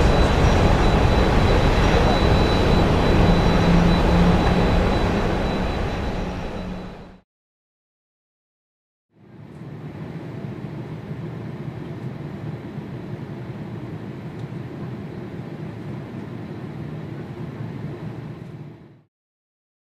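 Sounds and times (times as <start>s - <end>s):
jet engines rumbling: 0.0s - 7.2s.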